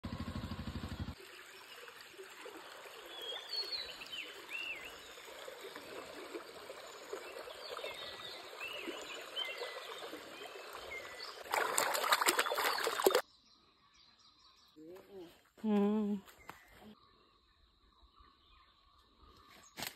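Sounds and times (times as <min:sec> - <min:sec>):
stream trickling over rocks: 0:01.1 - 0:13.2
small birds chirping: 0:06.4 - 0:19.9.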